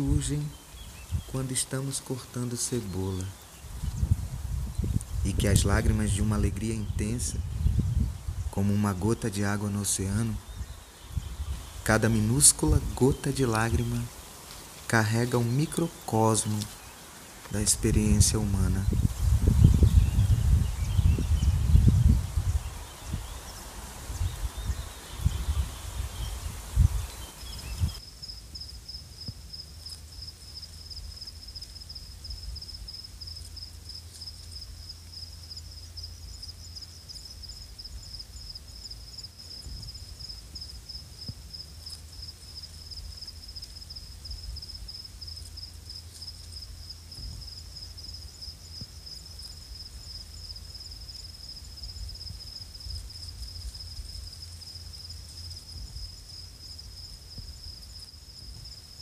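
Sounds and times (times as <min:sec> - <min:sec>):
insect trilling: 0:04.7 - 0:59.0.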